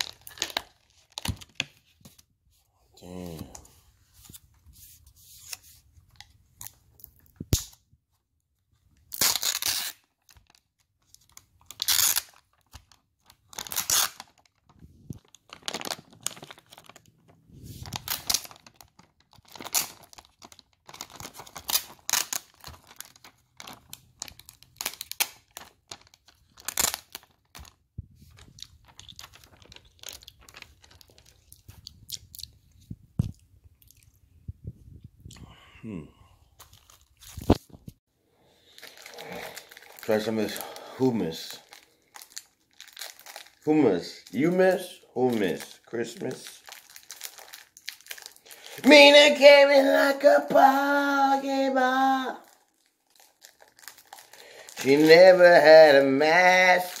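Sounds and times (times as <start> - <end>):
food crunching and crinkling: 9.2 - 34.2, 36.6 - 37.8, 38.6 - 43.7, 46.5 - 48.8, 52.4 - 55.4.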